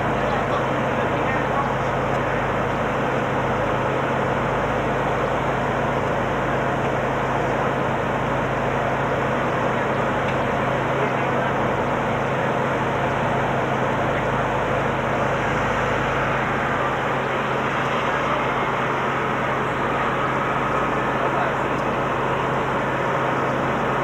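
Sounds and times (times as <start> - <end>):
vehicle engine hum from cab: 0.0 - 24.0.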